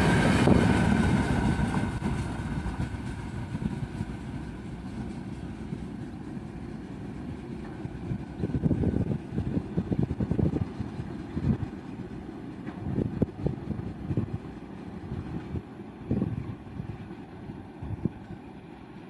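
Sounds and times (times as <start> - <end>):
wind buffeting microphone: 0.0 - 18.7
freight train rumble: 0.0 - 19.0.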